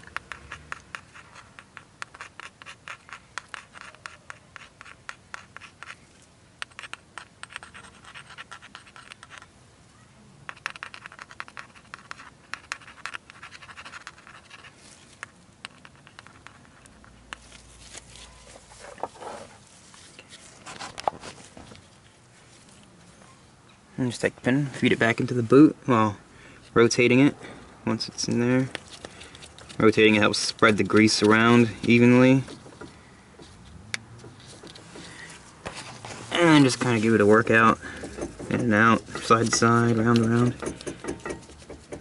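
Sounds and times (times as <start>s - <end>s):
grease tube clicking and rubbing: 0.0s - 6.0s, 6.6s - 9.5s, 10.5s - 19.5s, 35.7s - 42.0s.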